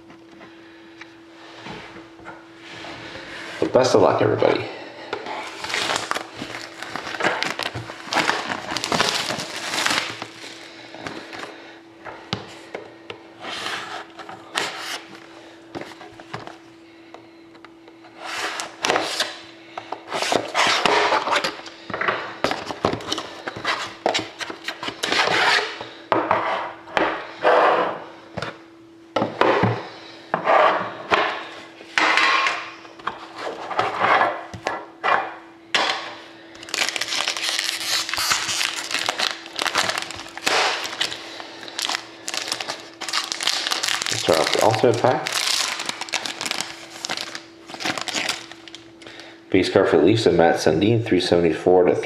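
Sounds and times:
faint steady hum: 0:00.0 - 0:52.0
foil wrapper crinkling: 0:05.4 - 0:11.4, 0:36.6 - 0:49.0.

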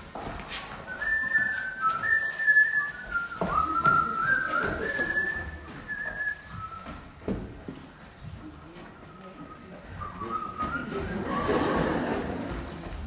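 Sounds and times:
person whistling a tune: 0:00.9 - 0:07.1, 0:09.2 - 0:11.6.

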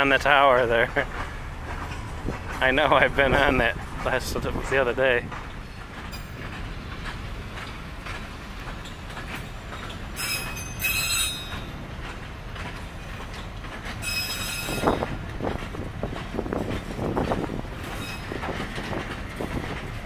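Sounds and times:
train wheels rumbling on track: 0:00.0 - 0:20.0
high-pitched wheel squeal: 0:10.2 - 0:11.7, 0:14.0 - 0:15.0, 0:18.0 - 0:18.4.

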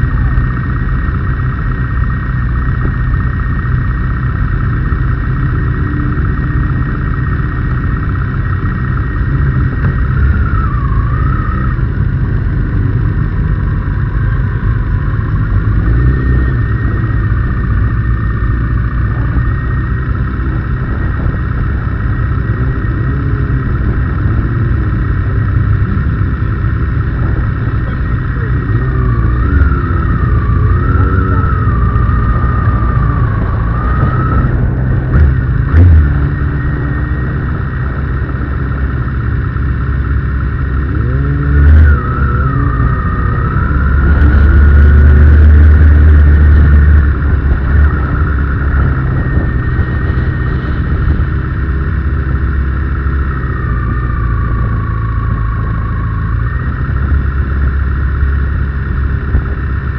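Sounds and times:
motorcycle engines idling: 0:00.0 - 0:59.9
motorcycle throttle blips: 0:00.0 - 0:59.9.

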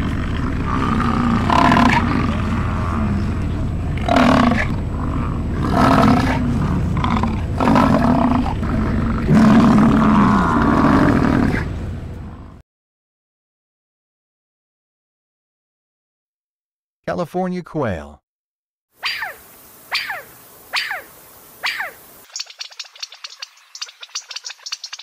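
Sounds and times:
bison bellowing: 0:00.0 - 0:12.6
steady low rumble: 0:00.0 - 0:12.6.

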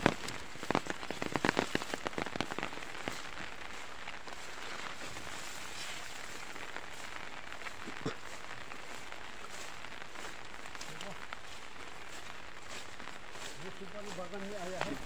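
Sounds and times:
wet grass rustling underfoot: 0:00.0 - 0:15.0.

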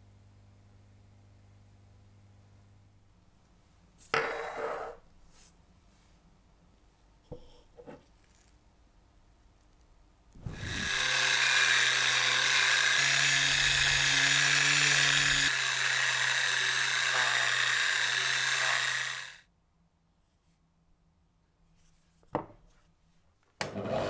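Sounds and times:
electric sander running: 0:10.4 - 0:19.4.

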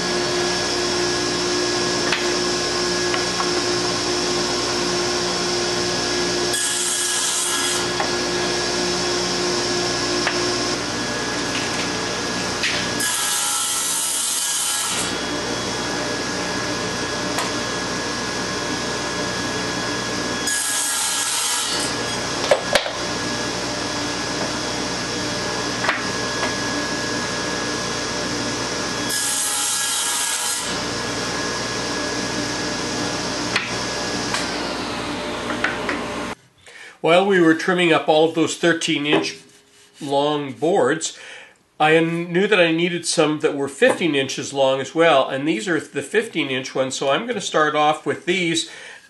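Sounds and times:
table saw cutting wood: 0:00.0 - 0:36.4, 0:38.4 - 0:40.3.

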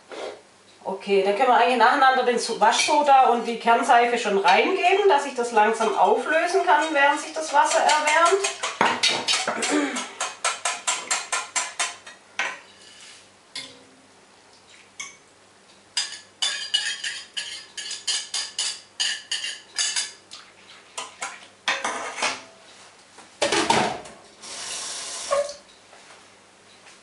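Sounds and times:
whisk clinking against metal pot: 0:04.4 - 0:12.1, 0:16.0 - 0:20.2.

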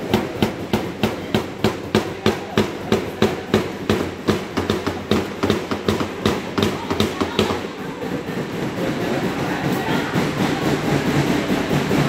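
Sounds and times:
hammer nailing into wood: 0:00.0 - 0:07.6.

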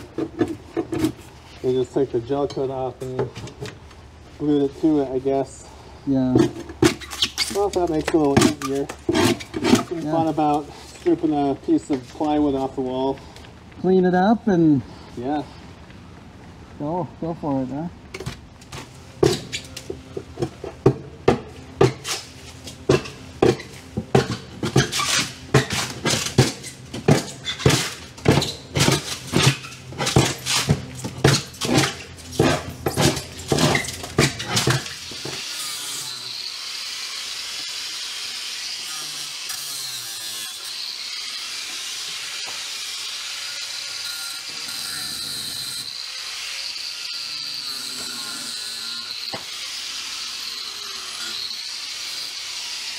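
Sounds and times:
angle grinder grinding: 0:21.9 - 0:52.9
hand tools knocking on wood: 0:22.9 - 0:24.9.

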